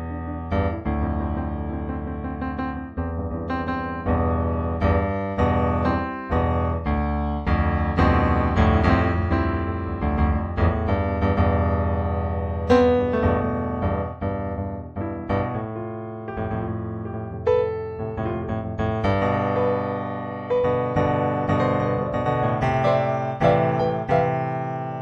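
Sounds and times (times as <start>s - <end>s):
piano music: 0.0s - 25.0s.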